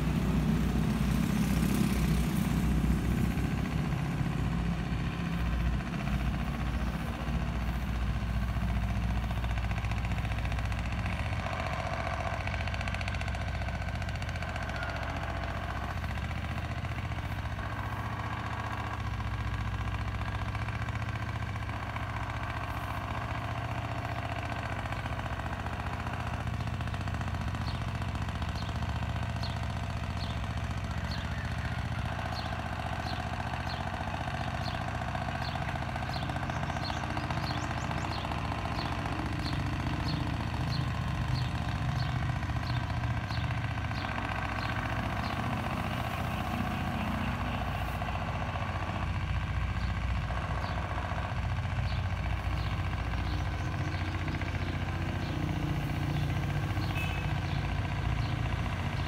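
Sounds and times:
bird chirping: 0:35.4 - 0:45.4, 0:52.6 - 0:57.6.

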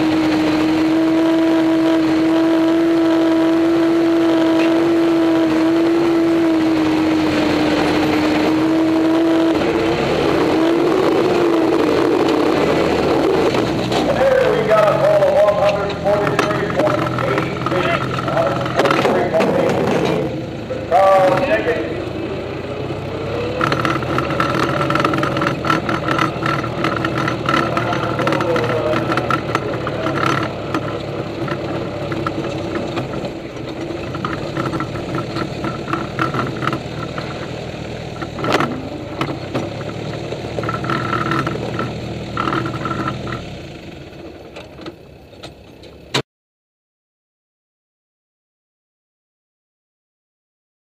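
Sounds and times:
tractor engine running: 0:00.0 - 0:46.2
chassis rattling and clicking: 0:12.0 - 0:21.7, 0:23.6 - 0:43.5.

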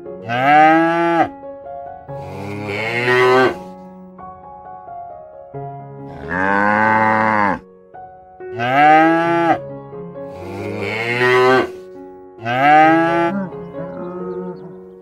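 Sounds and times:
cattle mooing: 0:00.3 - 0:01.3, 0:02.2 - 0:03.7, 0:06.1 - 0:07.6, 0:08.6 - 0:09.6, 0:10.3 - 0:11.8, 0:12.4 - 0:14.8.

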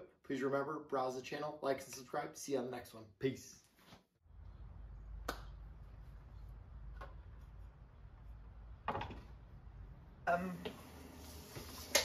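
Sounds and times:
low steady rumble: 0:04.3 - 0:10.4.

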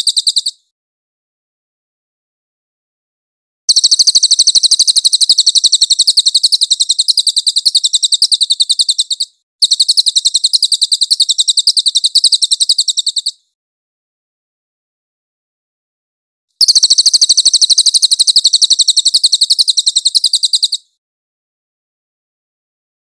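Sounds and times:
songbird high-pitched trill: 0:00.0 - 0:00.6, 0:03.7 - 0:13.4, 0:16.6 - 0:21.0.

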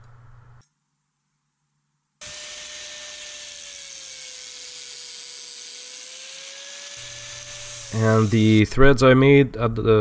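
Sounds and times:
angle grinder cutting metal: 0:02.2 - 0:08.7.

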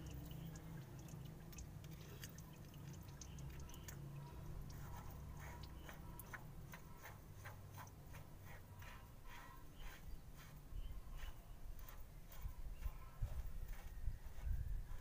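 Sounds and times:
wet clicks and squishes: 0:00.0 - 0:06.8
low steady hum: 0:00.0 - 0:15.0.

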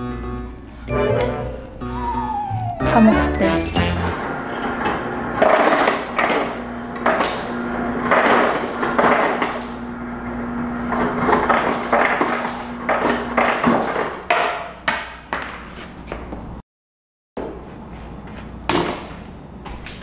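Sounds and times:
low hum: 0:00.1 - 0:04.4.

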